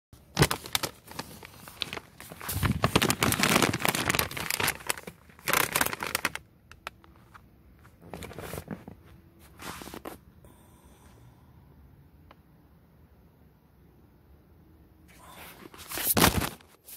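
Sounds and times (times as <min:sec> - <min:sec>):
potato chip bag crinkling: 0:00.2 - 0:07.0.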